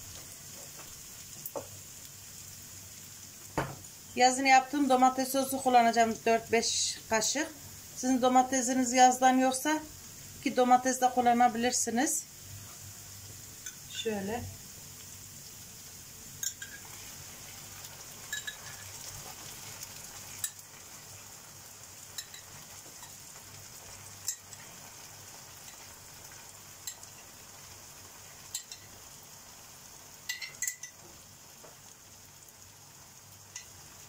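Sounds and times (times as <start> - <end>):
onions sizzling in a pan: 0.0 - 34.0
spoon clinking on glass jar: 18.3 - 18.8, 30.3 - 31.0.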